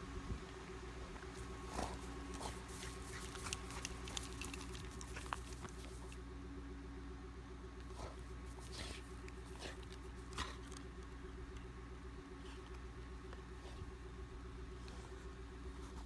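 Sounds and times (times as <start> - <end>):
steady low hum: 0.0 - 16.0
dog claws clicking and scratching: 2.4 - 6.2.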